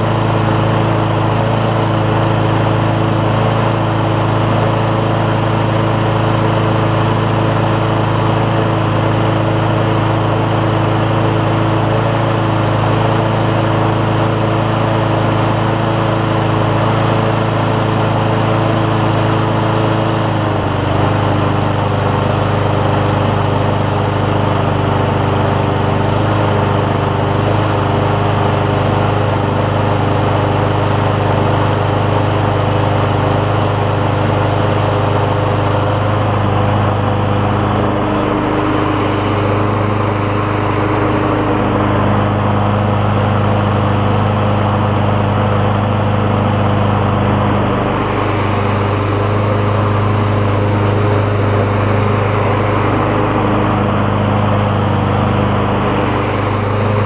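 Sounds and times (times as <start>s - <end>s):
push mower engine running: 0.0s - 57.0s.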